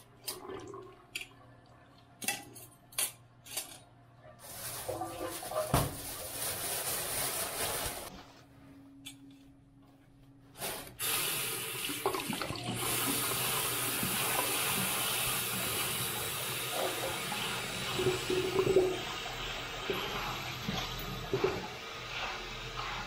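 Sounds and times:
tap water running: 10.9s - 23.0s.

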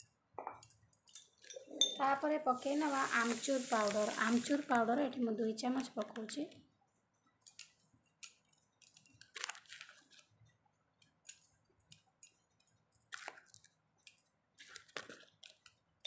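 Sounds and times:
spoon scraping steel bowl: 1.4s - 4.0s.

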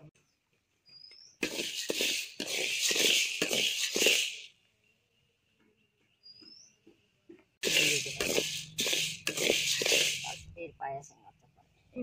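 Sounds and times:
ladle scraping beans in metal pan: 1.4s - 4.5s, 7.6s - 10.5s.

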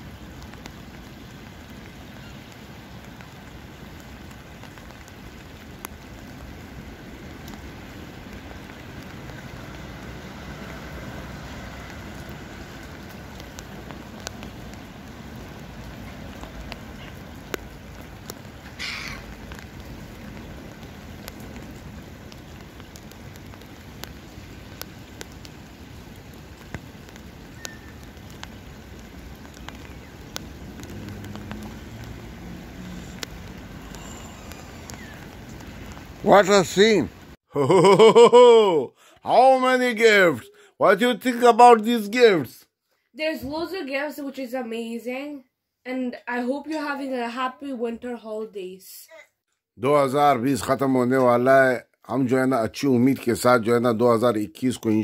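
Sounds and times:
rain falling on water: 0.0s - 42.6s, 49.8s - 55.0s
drops ticking: 15.6s - 39.2s.

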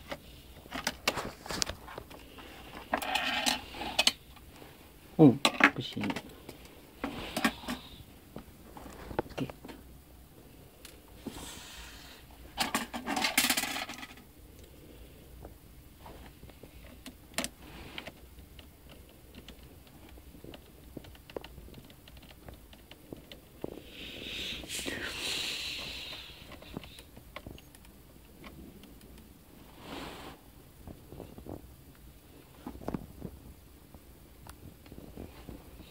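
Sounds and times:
scraping hiss: 10.8s - 13.8s, 23.6s - 27.2s, 29.6s - 30.5s.

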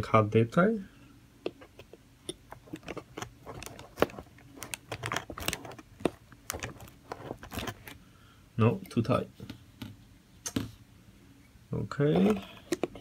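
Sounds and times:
knife blade scraping plastic: 2.5s - 7.9s.

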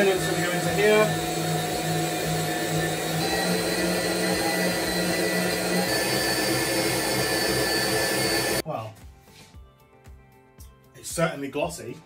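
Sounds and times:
electric stand mixer whisking: 0.0s - 8.6s.

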